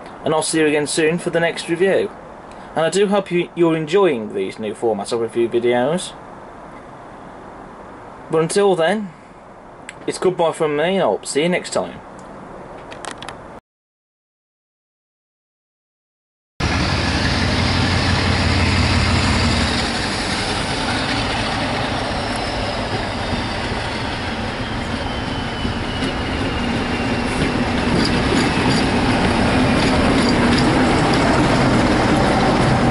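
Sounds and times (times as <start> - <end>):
diesel locomotive passing: 16.6 - 32.9
train coaches rolling past: 16.6 - 32.9
rail-joint clicks: 19.7 - 32.9.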